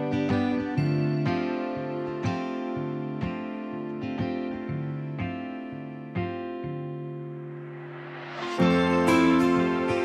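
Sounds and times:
background music with plucked notes: 0:00.0 - 0:10.0.

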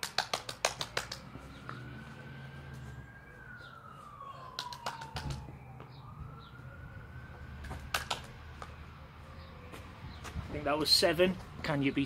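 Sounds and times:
hand claps: 0:00.0 - 0:01.3, 0:04.6 - 0:05.4, 0:07.8 - 0:08.7
faint siren wailing: 0:01.1 - 0:11.3.

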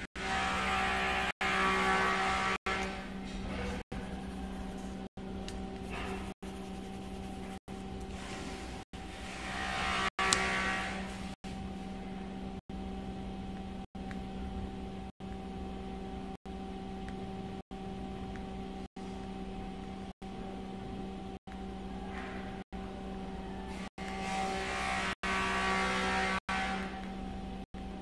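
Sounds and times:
steady low hum: 0:00.0 - 0:28.0
coloured pencil scratching on paper: 0:03.6 - 0:05.1, 0:05.8 - 0:07.6.

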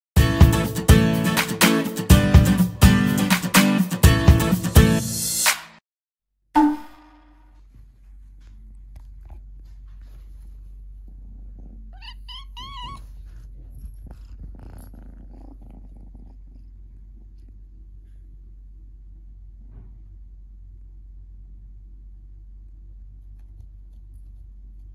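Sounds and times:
kitten purring: 0:08.6 - 0:24.9
kitten chirping: 0:11.9 - 0:15.0.

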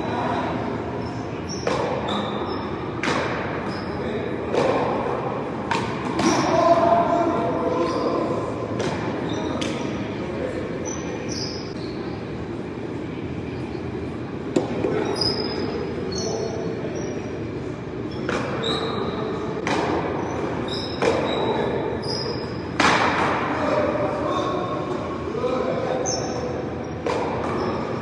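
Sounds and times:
short high squeaks: 0:01.0 - 0:02.8, 0:10.8 - 0:12.2, 0:15.0 - 0:17.4, 0:18.1 - 0:19.3, 0:20.2 - 0:22.7.

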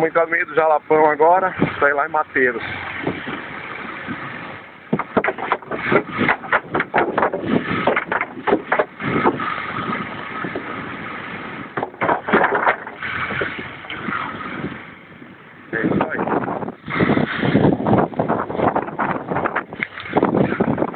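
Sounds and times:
wooden boards clattering: 0:02.6 - 0:10.8, 0:11.4 - 0:14.7.

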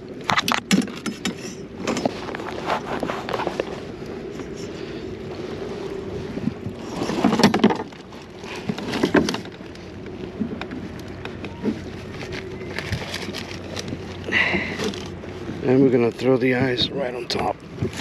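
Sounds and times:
faint steady hum: 0:00.0 - 0:18.0
rustling and knocks on plastic hull: 0:06.6 - 0:09.6.

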